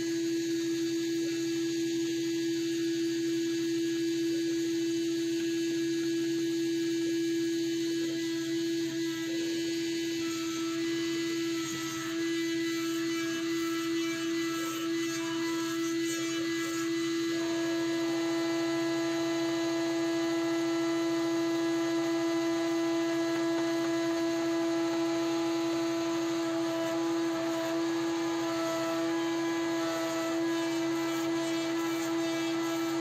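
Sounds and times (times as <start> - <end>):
band sawmill sawing log: 26.8 - 33.0.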